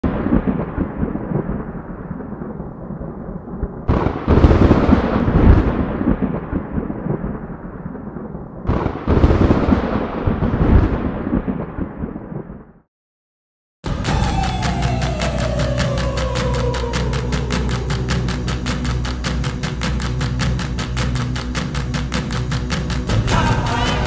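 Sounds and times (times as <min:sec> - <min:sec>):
loud booms: 0:00.0 - 0:12.8
low rumbling: 0:13.9 - 0:24.0.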